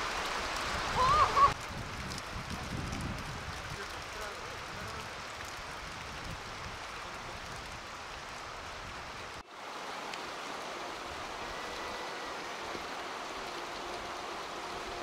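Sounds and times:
hiss of water: 0.0s - 15.0s.

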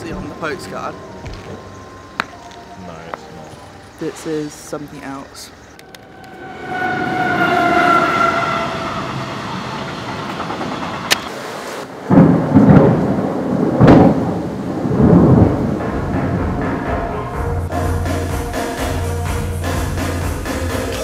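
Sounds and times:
low rolling thunder: 11.8s - 17.7s
sharp thunder crack: 11.9s - 17.2s.

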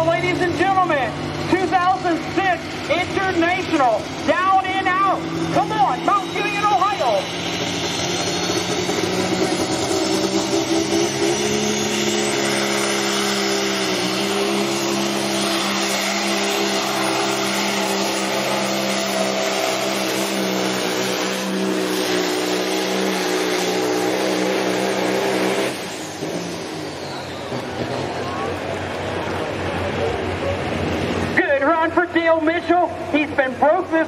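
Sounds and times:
diesel truck engine droning: 0.0s - 34.0s.

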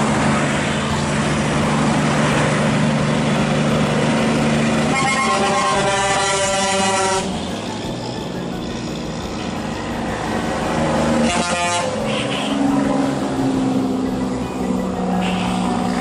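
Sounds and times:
heavy diesel trucks passing: 0.0s - 16.0s
truck horn blast: 4.7s - 7.4s, 11.1s - 12.7s.

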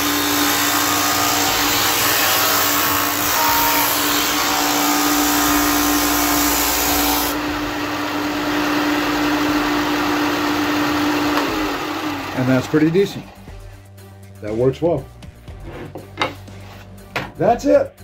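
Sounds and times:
sander motor humming: 3.9s - 13.4s.

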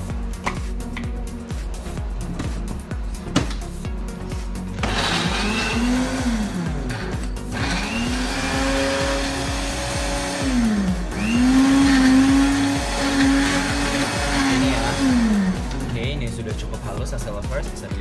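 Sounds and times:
electric blender grinding: 4.8s - 16.0s.

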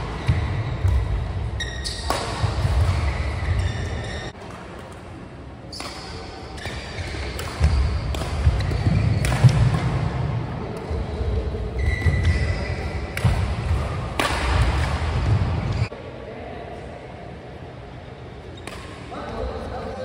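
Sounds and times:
shoe squeak: 1.6s - 4.4s, 11.8s - 13.1s
racket striking shuttlecock: 1.9s - 3.2s, 5.8s - 10.0s, 13.1s - 15.5s.

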